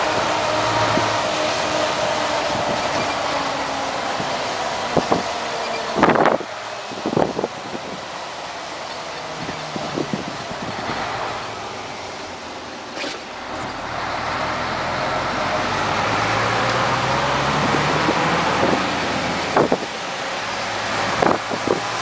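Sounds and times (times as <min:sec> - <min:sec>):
truck diesel engine in cab: 0:00.0 - 0:22.0.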